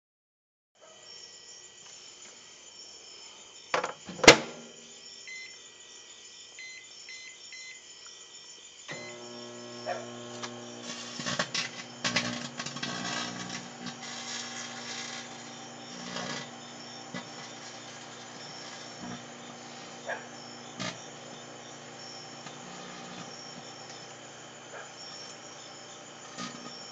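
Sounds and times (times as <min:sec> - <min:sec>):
keypad beeps: 0:05.3 - 0:05.5, 0:06.6 - 0:07.8
phone crackling and popping: 0:08.9 - 0:24.1
microwave humming: 0:08.9 - 0:26.9.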